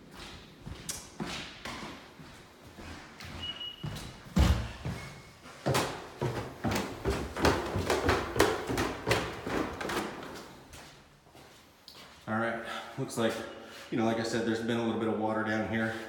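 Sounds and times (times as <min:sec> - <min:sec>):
footsteps going down stairs: 0:00.0 - 0:12.3.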